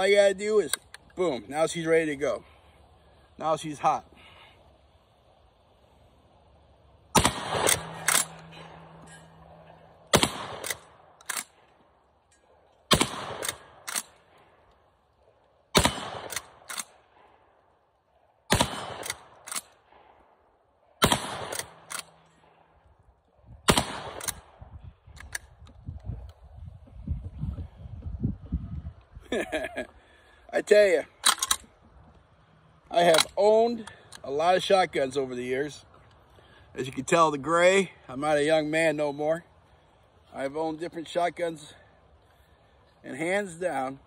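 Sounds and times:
shotgun shots: 7.1 - 8.9, 10.1 - 11.6, 12.9 - 14.4, 15.7 - 17.3, 18.5 - 20.2, 21.0 - 22.2, 23.6 - 24.6.

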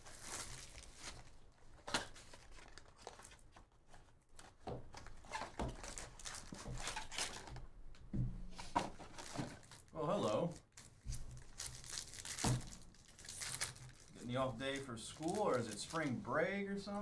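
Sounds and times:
foil wrapper tearing and crinkling: 0.0 - 3.6, 5.2 - 7.5, 9.1 - 16.3.

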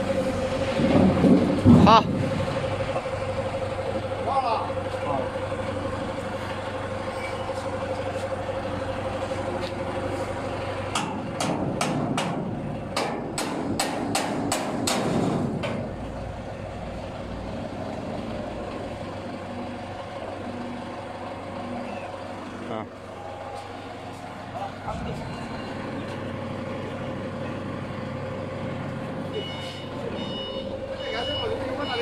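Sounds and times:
hammer striking steel hopper: 11.0 - 15.8.

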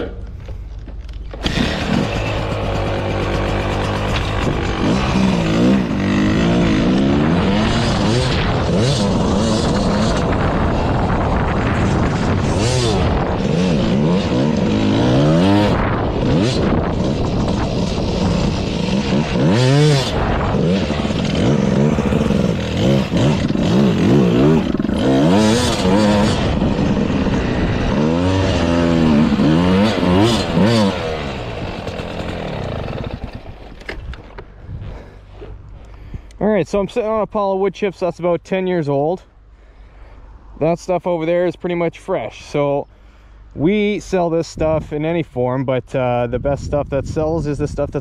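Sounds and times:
dirt bike engine revving: 1.3 - 35.7.

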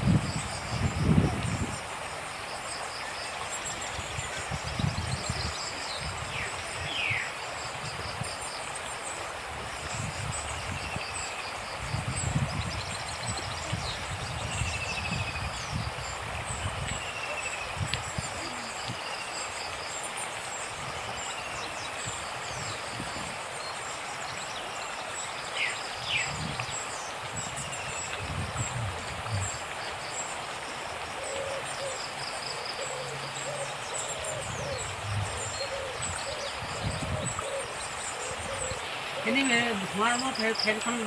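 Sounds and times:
river rushing: 0.0 - 41.0.

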